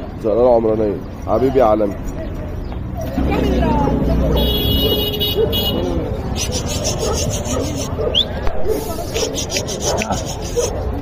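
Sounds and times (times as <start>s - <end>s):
rasping rubbing noise: 6.2s - 8.0s, 8.8s - 10.8s.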